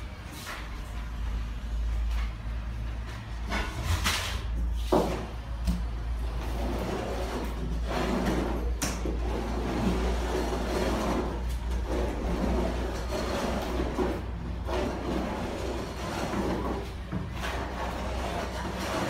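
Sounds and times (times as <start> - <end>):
glue spreader scraping floor: 6.2 - 19.0.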